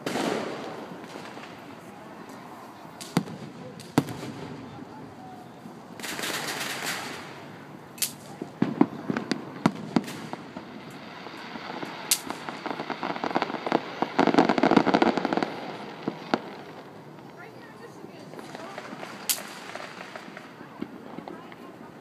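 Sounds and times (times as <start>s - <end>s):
fireworks bursting with bangs: 0.0s - 22.0s
fireworks hiss: 5.9s - 17.0s, 17.6s - 21.8s.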